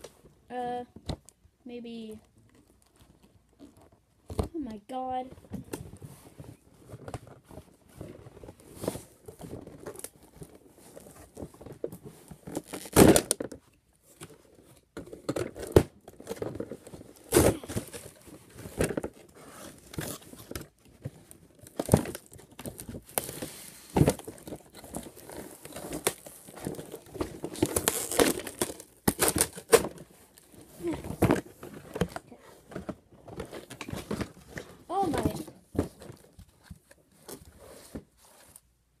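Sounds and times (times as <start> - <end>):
packaging crinkling and tearing: 8.0 - 13.6, 15.2 - 32.3.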